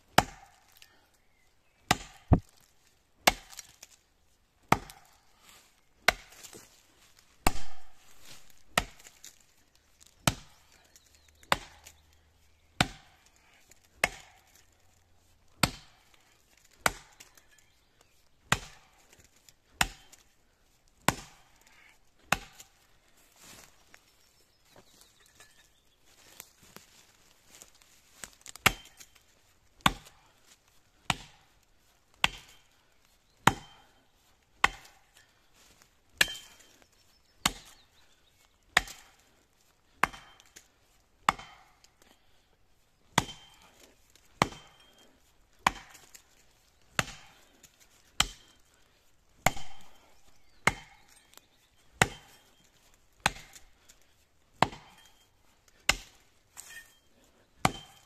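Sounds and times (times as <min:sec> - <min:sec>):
axe chopping into tree trunk: 0:00.1 - 0:00.8, 0:01.9 - 0:04.0, 0:04.7 - 0:05.1, 0:06.1 - 0:06.6, 0:07.4 - 0:09.4, 0:10.2 - 0:12.0, 0:12.8 - 0:14.7, 0:15.6 - 0:17.5, 0:18.5 - 0:20.2, 0:21.0 - 0:21.5, 0:22.2 - 0:22.8, 0:28.2 - 0:29.2, 0:29.8 - 0:30.2, 0:31.1 - 0:31.4, 0:32.2 - 0:32.7, 0:33.4 - 0:33.8, 0:34.6 - 0:35.1, 0:36.2 - 0:36.7, 0:37.4 - 0:37.8, 0:38.8 - 0:39.2, 0:40.0 - 0:40.7, 0:41.3 - 0:42.2, 0:43.1 - 0:43.7, 0:44.3 - 0:45.0, 0:45.6 - 0:46.2, 0:47.0 - 0:47.4, 0:48.0 - 0:48.5, 0:49.4 - 0:51.2, 0:52.0 - 0:52.4, 0:53.2 - 0:53.6, 0:54.6 - 0:57.0, 0:57.6 - 0:58.0.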